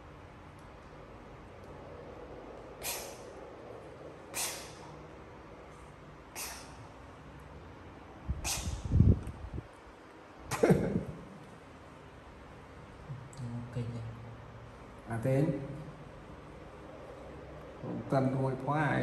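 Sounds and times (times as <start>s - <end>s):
man blowing breaths out: 4.3s - 4.8s, 6.4s - 6.8s, 8.4s - 8.9s.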